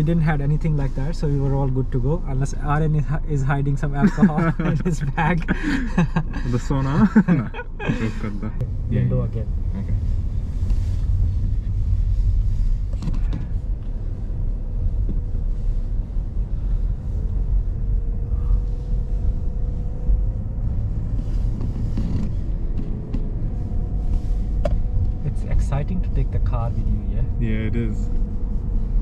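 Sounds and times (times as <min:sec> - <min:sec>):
car engine and tyres rumbling: 0:00.0 - 0:29.0
car interior creaks: 0:21.1 - 0:23.3.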